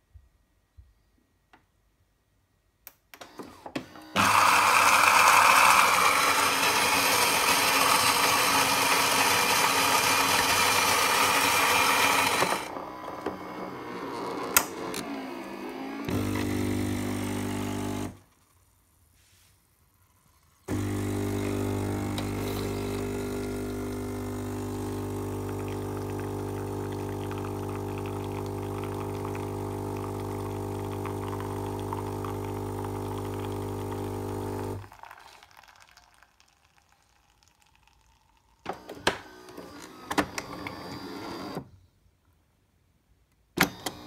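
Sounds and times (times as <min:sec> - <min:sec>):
espresso machine pump buzzing: 0:04.2 - 0:14.3, 0:16.1 - 0:18.2, 0:20.7 - 0:36.4.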